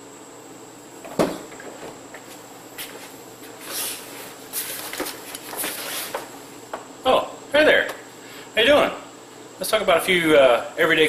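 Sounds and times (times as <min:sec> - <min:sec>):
rustling and shuffling: 0:01.8 - 0:06.6.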